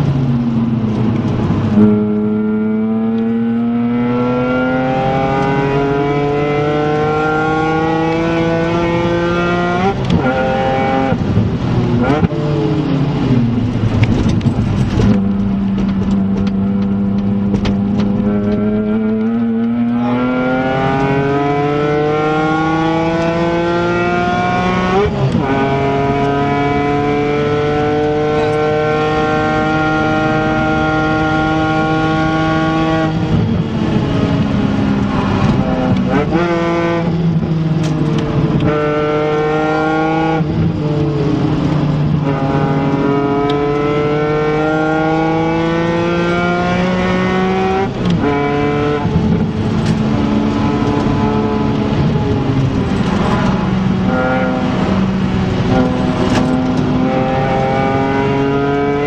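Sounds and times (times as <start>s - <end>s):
car engine at full throttle: 0.0s - 59.0s.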